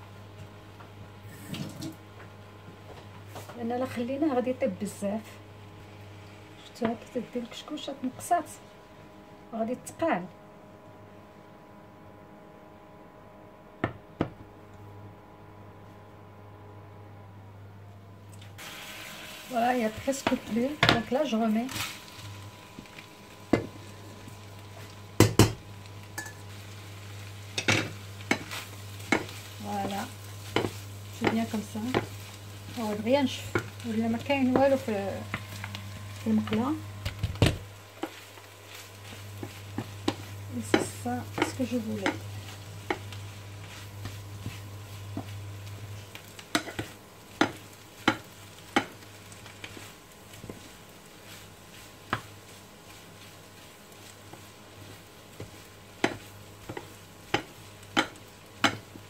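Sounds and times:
low steady hum: 0.0s - 59.0s
food sizzling in a pan: 18.6s - 59.0s
wooden spatulas knocking on pan: 25.2s - 25.6s, 46.5s - 49.0s, 55.4s - 58.9s.

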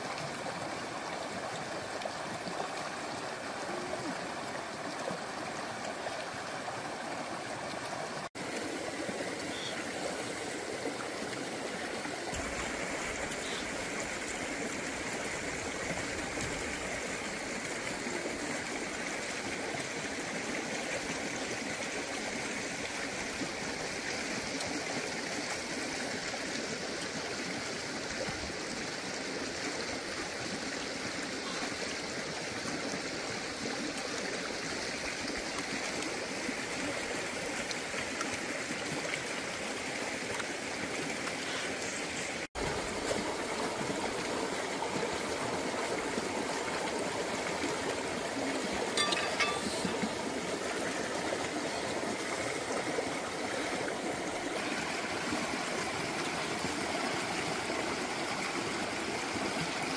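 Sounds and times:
stream water flowing over stones: 0.0s - 59.9s.

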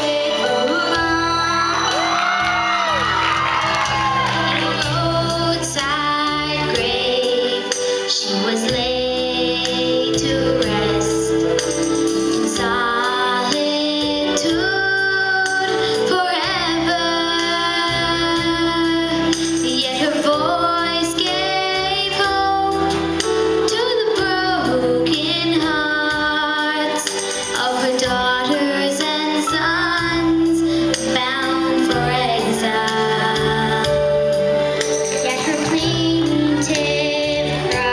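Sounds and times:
girl singing into microphone: 0.0s - 37.9s
music with steady beat: 10.2s - 14.7s.

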